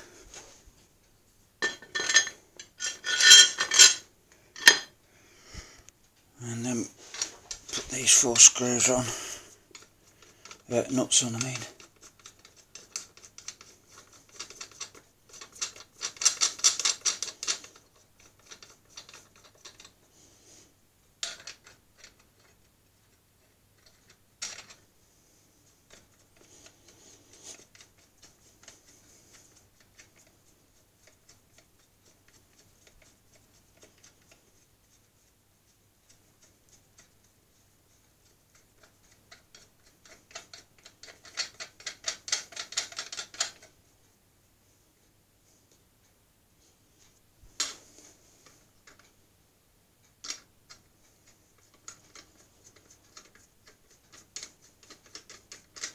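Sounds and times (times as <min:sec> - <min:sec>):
metal nuts clicking and rattling: 0:01.6 - 0:04.9, 0:09.7 - 0:19.9, 0:21.2 - 0:22.6, 0:38.5 - 0:43.7, 0:50.2 - 0:55.9.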